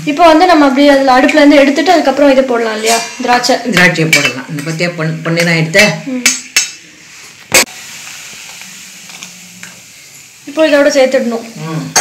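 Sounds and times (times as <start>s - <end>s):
faint ghee sizzle: 4.8s - 12.0s.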